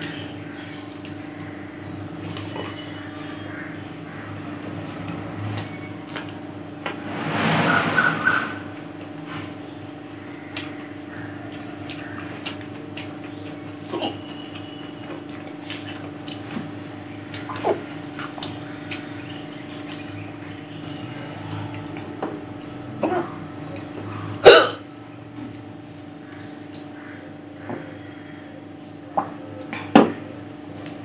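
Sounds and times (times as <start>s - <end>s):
steady hum: 0.0s - 31.0s
chewing and mouth sounds: 11.4s - 22.8s.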